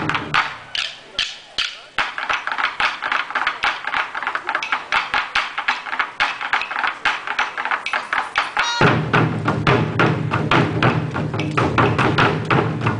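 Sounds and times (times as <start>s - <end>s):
wooden drumsticks clacking: 0.1s - 8.9s.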